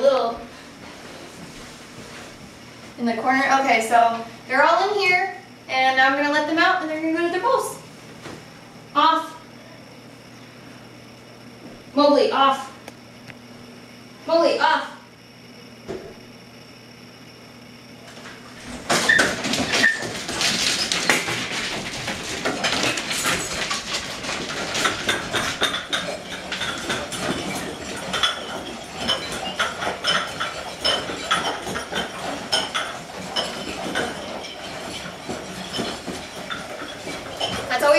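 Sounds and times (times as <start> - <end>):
dogs eating from bowls: 18.6 - 37.9.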